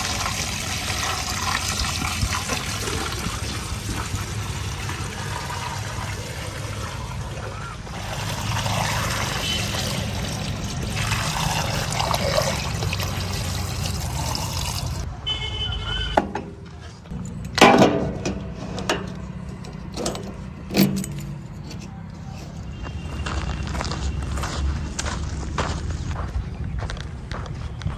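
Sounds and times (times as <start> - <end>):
oil trickling through a funnel: 0.0 - 15.1
metallic clicks and knocks: 16.2 - 21.9
keys jangling: 20.1 - 21.9.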